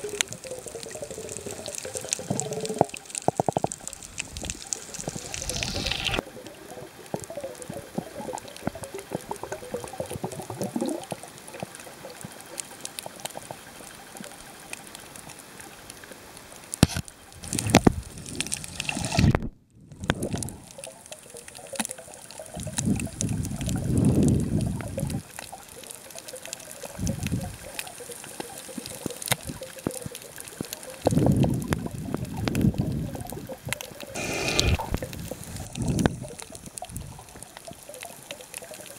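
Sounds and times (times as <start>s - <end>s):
steady hiss: 0.0s - 8.6s, 13.7s - 19.5s, 34.0s - 38.9s
water sloshing and gurgling underwater: 0.0s - 38.9s
faint clicks: 20.0s - 38.9s.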